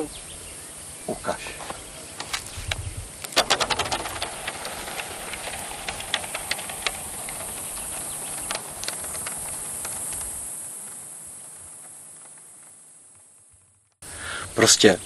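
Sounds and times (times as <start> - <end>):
small clicks: 2.2 - 13.3.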